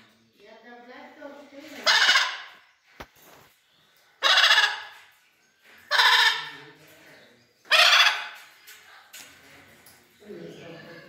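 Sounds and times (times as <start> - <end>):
macaw squawking: 1.8 - 2.6, 4.2 - 5.0, 5.9 - 6.6, 7.7 - 8.4.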